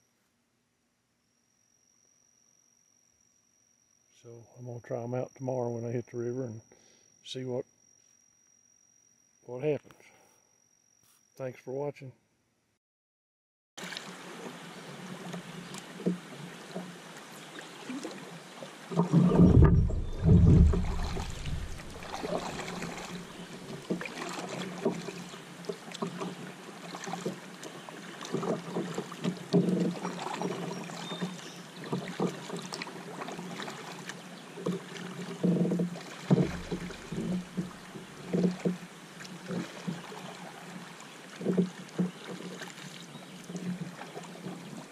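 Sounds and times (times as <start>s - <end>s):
paddle strokes in water: 13.8s - 44.9s
water and wind: 13.8s - 44.9s.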